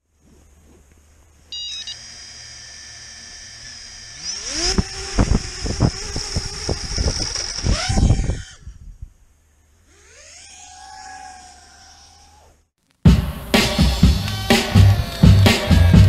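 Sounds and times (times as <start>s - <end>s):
drone motors whining: 1.5s - 12.7s.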